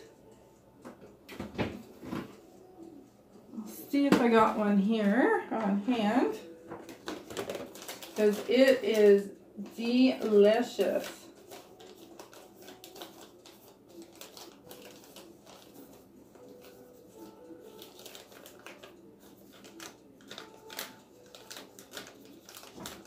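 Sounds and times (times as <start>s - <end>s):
rummaging through packets: 6.4s - 9.2s, 9.8s - 23.0s.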